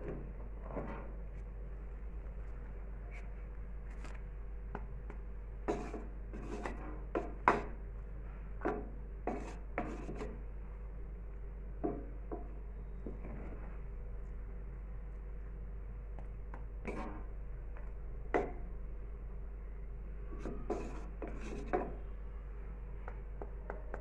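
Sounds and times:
wooden spatula scraping a pot: 0.0 - 1.2, 5.7 - 7.7, 8.6 - 10.4, 13.0 - 13.9, 16.8 - 17.4, 20.4 - 22.0.

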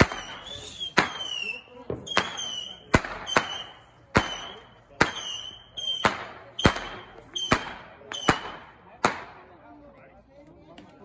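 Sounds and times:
firework crackle: 0.0 - 8.7
firework high tone: 0.0 - 8.8
fireworks bangs: 0.0 - 9.5.

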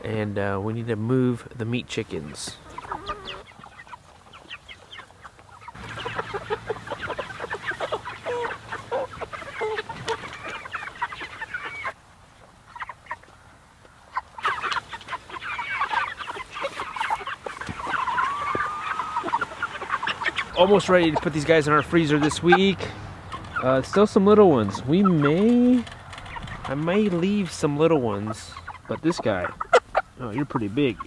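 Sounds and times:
chickens clucking and chirping: 0.0 - 31.0.

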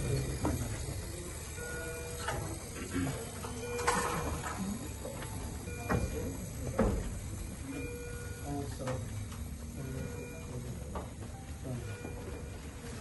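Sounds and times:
hospital bed being wheeled: 3.4 - 13.0.

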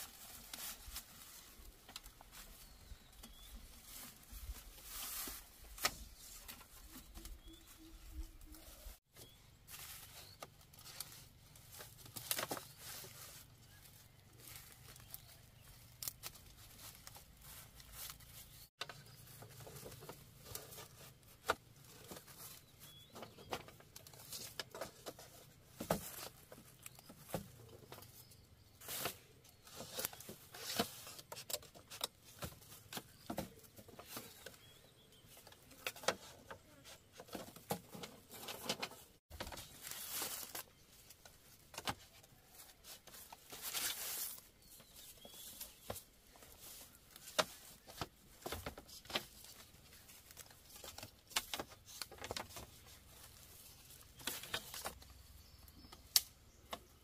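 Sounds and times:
bamboo rustling: 0.0 - 57.0
bamboo cracking and snapping: 9.8 - 13.2, 14.4 - 18.2, 39.4 - 44.4, 47.1 - 52.7, 53.3 - 56.8.

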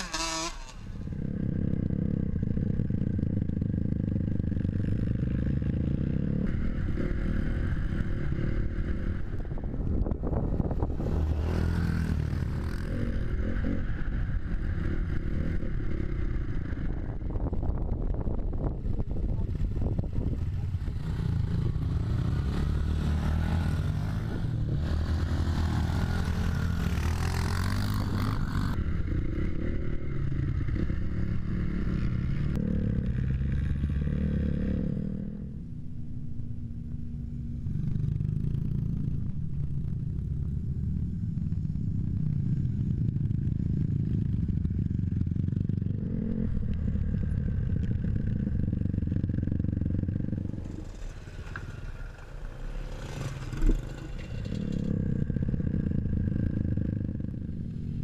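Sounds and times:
motocross bikes running: 0.0 - 58.0
wind on microphone: 6.5 - 22.5.

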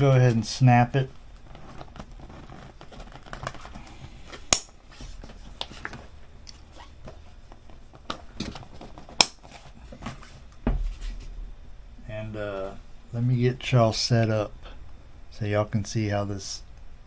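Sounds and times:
nylon bag handling: 1.4 - 3.8.

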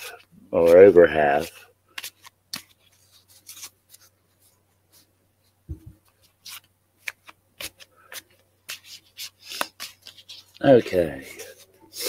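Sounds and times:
cards being shuffled: 1.9 - 4.4, 5.7 - 12.0
soft low bump: 5.7 - 6.0.

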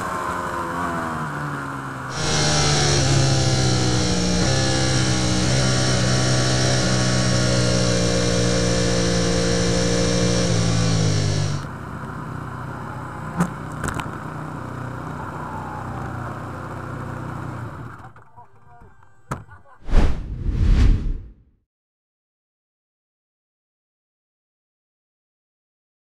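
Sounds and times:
motorcycle engine at high revs: 0.0 - 15.4.

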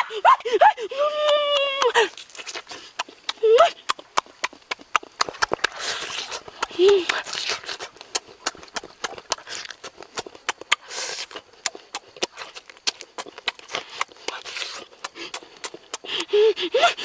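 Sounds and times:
person chewing and lip smacking: 1.2 - 17.0
sucking hiss: 5.4 - 8.3, 10.7 - 12.0.

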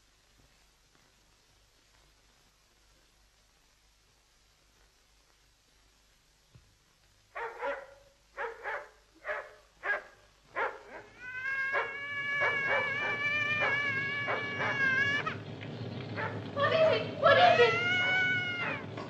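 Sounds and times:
dog barking: 7.3 - 15.0, 16.2 - 16.4
long high wail: 11.2 - 15.4, 17.2 - 18.9.

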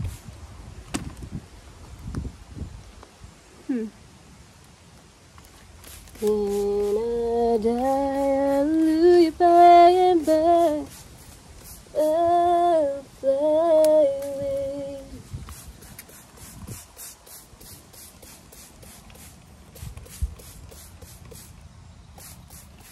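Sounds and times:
woman singing wordless tune: 6.2 - 10.9, 11.9 - 15.2.

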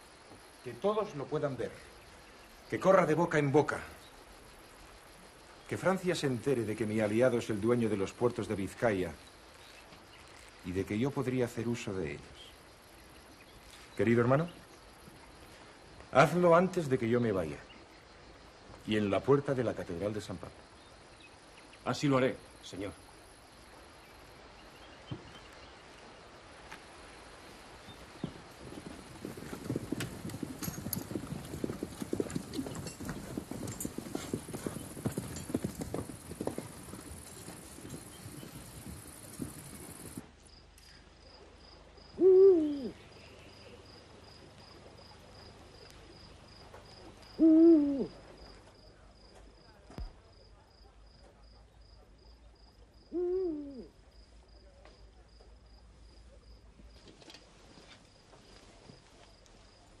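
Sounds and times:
faint high hiss: 0.0 - 49.1
crickets chirping: 0.0 - 60.0
horse hooves clip-clopping: 26.6 - 40.4
owl hoot: 42.2 - 43.0, 47.4 - 48.2, 53.1 - 53.9.

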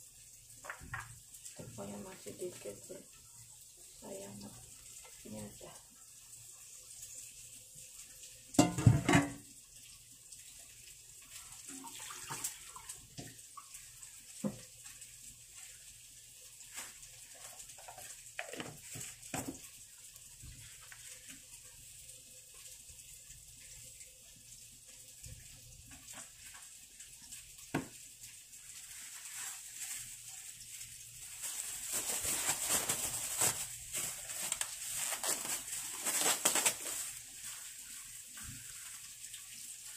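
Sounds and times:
plastic glove rustling: 16.5 - 19.5, 28.6 - 39.9.

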